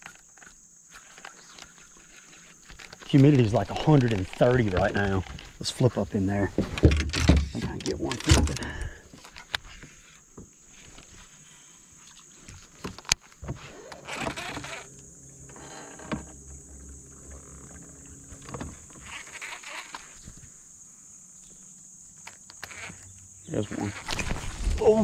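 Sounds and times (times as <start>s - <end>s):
rustle: 0.0s - 7.5s, 9.0s - 25.0s
constant high hiss: 0.0s - 25.0s
steady low hum: 13.0s - 22.1s.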